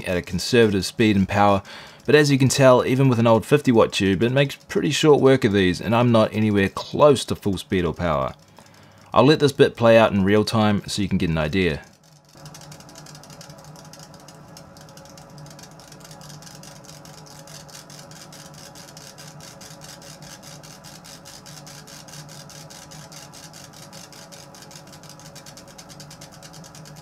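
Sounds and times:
fume extractor hum: 0:00.0 - 0:27.0
laser head moving rapid pulse: 0:11.5 - 0:27.0.

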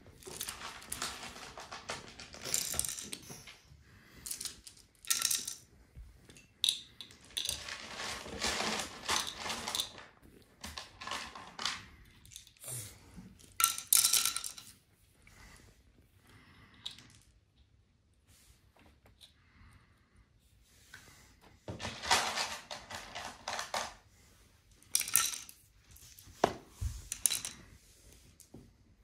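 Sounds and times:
wooden toy train pieces clattering: 0:00.2 - 0:03.6, 0:04.2 - 0:05.7, 0:06.3 - 0:12.6, 0:13.4 - 0:14.7, 0:21.8 - 0:24.0, 0:24.8 - 0:26.2, 0:27.1 - 0:27.6.

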